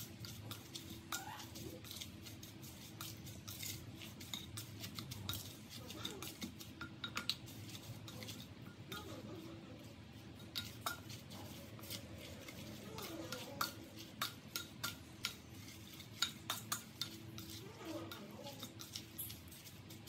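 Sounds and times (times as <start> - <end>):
spatula scraping and knocking a pot: 10.2 - 20.0.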